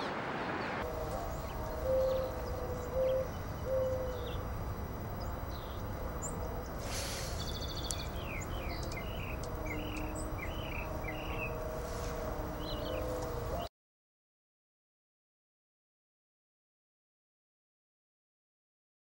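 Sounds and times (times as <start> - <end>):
hummingbird chip notes: 0.8 - 13.7
low background rumble: 0.8 - 13.7
short low steady tones: 0.8 - 13.7.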